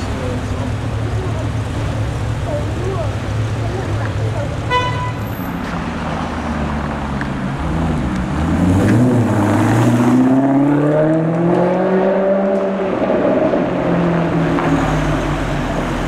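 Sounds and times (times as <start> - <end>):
car engine accelerating: 5.4 - 16.0.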